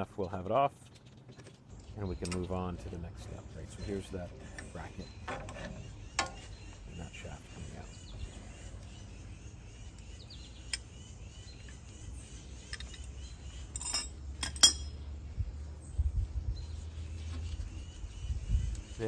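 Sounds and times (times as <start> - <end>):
birds chirping: 0.0 - 19.0
steel parts clinking: 12.6 - 13.1, 13.7 - 15.0.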